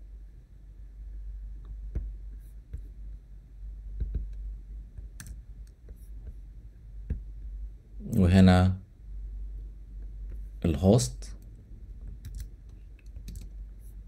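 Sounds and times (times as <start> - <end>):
low steady hum: 0.0 - 14.0
computer mouse and keyboard clicks: 5.1 - 5.8, 11.4 - 13.6.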